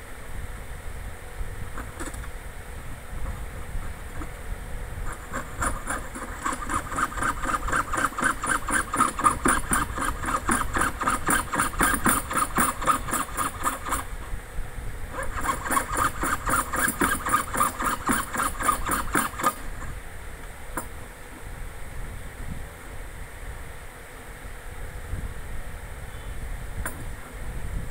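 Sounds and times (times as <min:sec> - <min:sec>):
hand saw rasping through metal: 0:05.0 - 0:14.2, 0:15.1 - 0:19.9.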